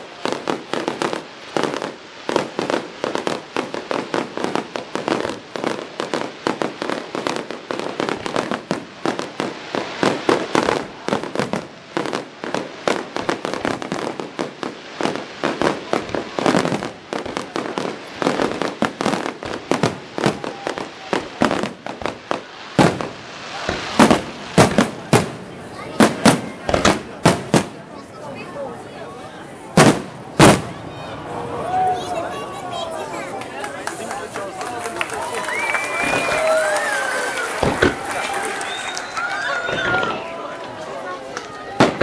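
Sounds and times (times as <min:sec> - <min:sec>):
fireworks bursting: 0:00.0 - 0:42.0.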